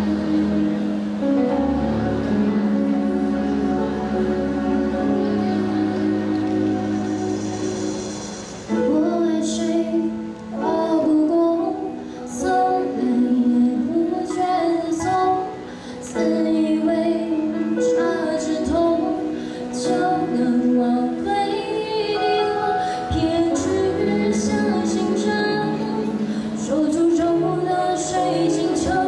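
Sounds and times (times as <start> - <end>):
instrumental accompaniment: 0.0 - 29.0
woman singing into a microphone: 8.7 - 29.0.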